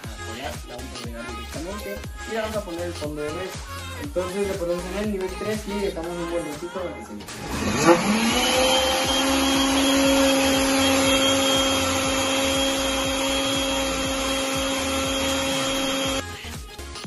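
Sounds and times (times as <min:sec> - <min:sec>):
blender motor whining: 0:07.3 - 0:16.2.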